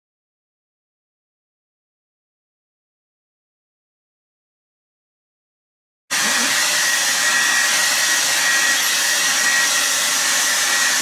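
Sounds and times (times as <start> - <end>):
hair dryer blowing: 6.1 - 11.0.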